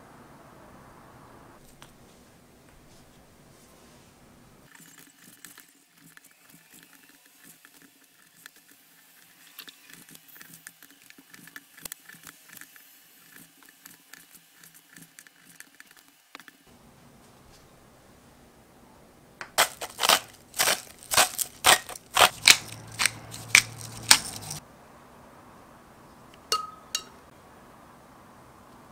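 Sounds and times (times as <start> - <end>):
knife slicing raw meat: 19.6 - 24.6.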